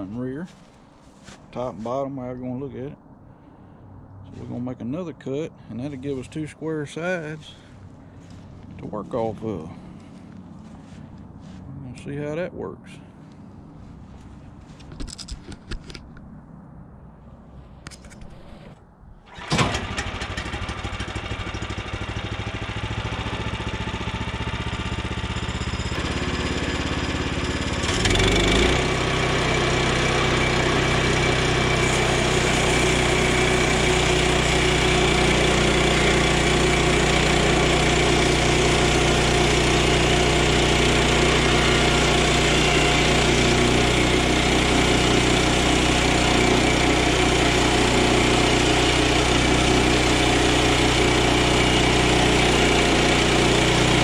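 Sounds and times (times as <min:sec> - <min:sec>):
small gasoline engine running: 0:19.3 - 0:54.0.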